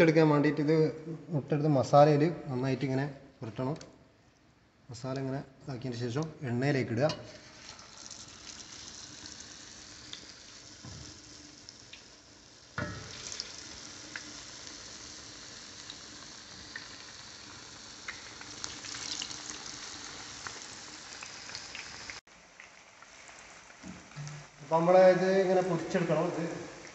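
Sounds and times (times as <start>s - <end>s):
eggs sizzling in hot oil: 7.1s - 26.9s.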